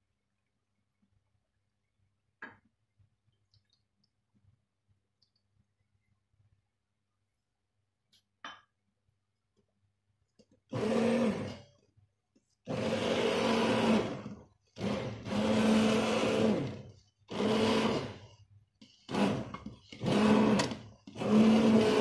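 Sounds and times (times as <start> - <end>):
stick blender motor humming: 10.7 - 11.7, 12.6 - 22.0.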